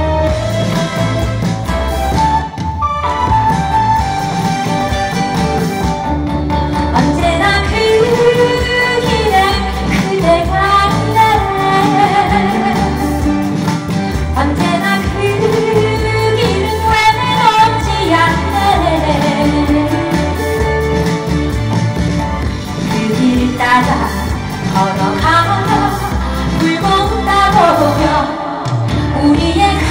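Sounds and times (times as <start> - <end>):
backing music with steady beat: 0.0 - 29.9
woman singing into microphone: 6.9 - 13.6, 14.3 - 20.9, 22.8 - 29.9.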